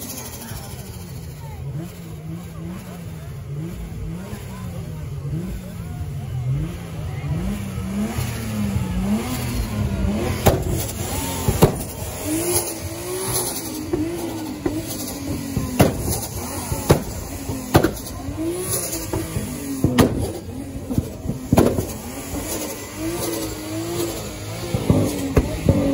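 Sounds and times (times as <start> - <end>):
car engine revving: 0.0 - 25.9
sharp bangs: 9.0 - 25.9.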